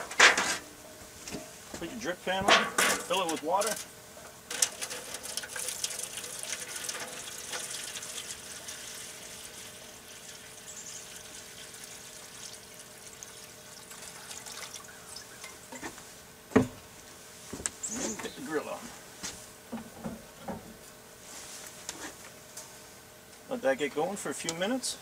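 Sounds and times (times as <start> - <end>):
water pouring into metal pan: 4.5 - 15.5.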